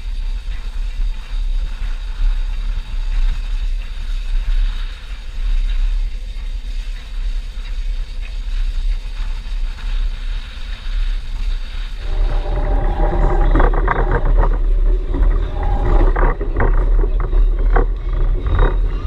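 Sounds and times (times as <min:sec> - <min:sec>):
wind noise on microphone: 0:00.0 - 0:19.0
steam train rolling past: 0:11.4 - 0:19.0.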